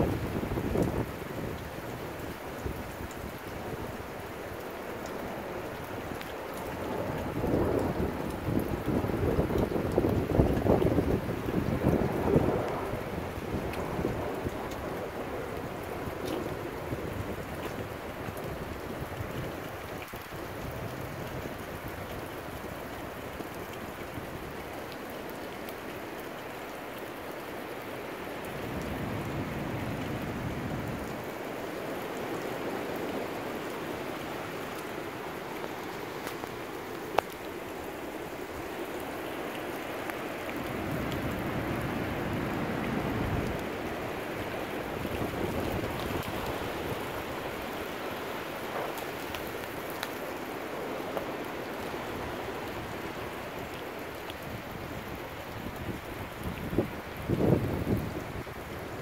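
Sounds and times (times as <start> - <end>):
wind gusts buffeting microphone: 0.0 - 4.2, 6.6 - 22.8, 40.1 - 53.5, 54.4 - 59.0
wind and rain: 0.0 - 59.0.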